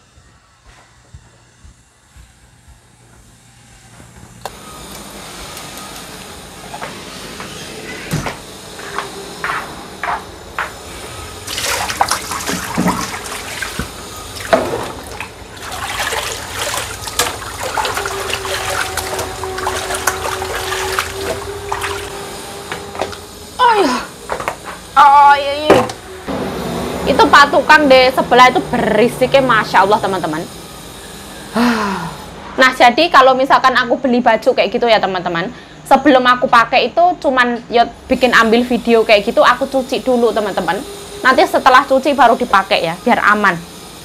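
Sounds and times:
steady hum: 0:00.0 - 0:44.0
water running: 0:11.4 - 0:26.0.

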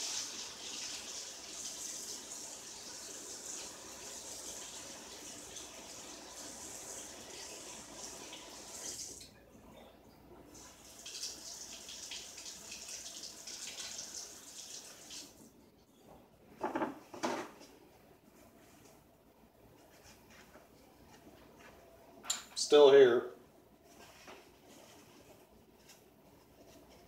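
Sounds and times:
kitchen tap running: 0:00.0 - 0:09.3, 0:10.5 - 0:15.4.

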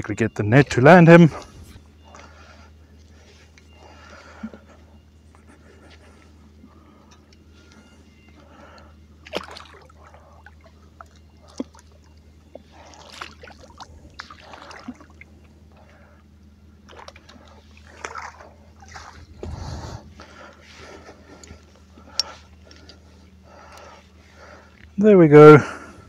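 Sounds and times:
water splashing and sloshing: 0:05.8 - 0:25.0.

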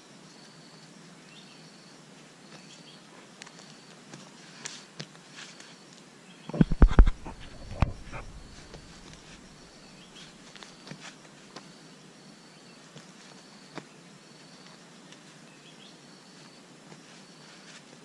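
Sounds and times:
insect chirping: 0:05.6 - 0:11.0, 0:11.6 - 0:17.6.

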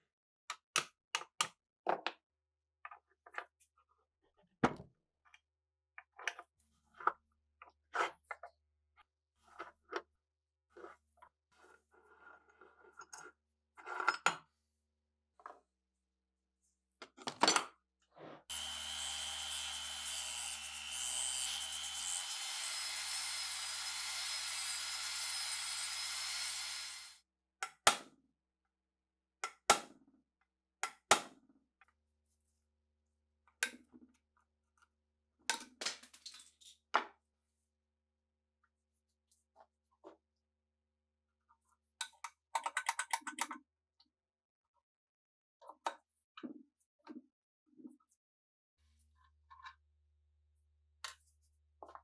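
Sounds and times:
rotary tool grinding whine: 0:18.5 - 0:27.2.

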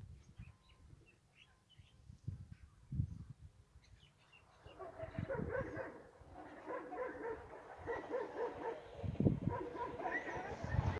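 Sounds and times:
dog barking: 0:04.7 - 0:10.9.

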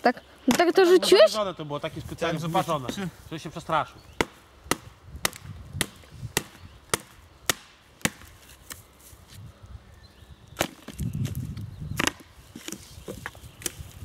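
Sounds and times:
blade chopping wood: 0:04.2 - 0:08.8, 0:10.6 - 0:11.4, 0:12.0 - 0:13.8.

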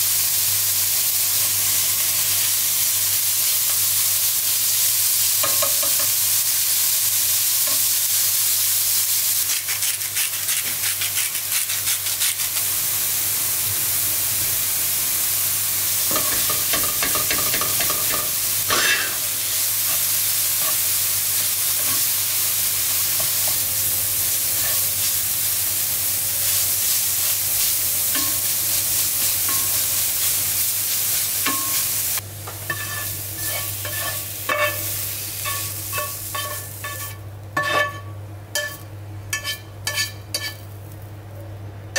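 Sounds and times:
food sizzling in oil: 0:00.0 - 0:41.1
spatula scraping frying pan: 0:32.7 - 0:40.7.

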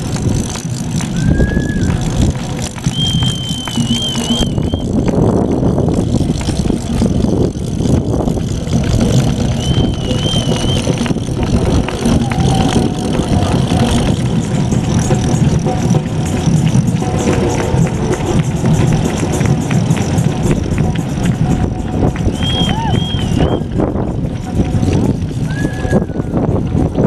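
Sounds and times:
rumbling street noise: 0:00.0 - 0:27.0
wavering high whistle: 0:01.2 - 0:02.0, 0:02.8 - 0:04.9, 0:09.5 - 0:11.0, 0:22.3 - 0:23.7.

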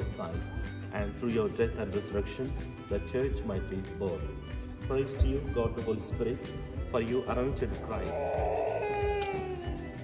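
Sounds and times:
baby crying: 0:07.8 - 0:10.0.

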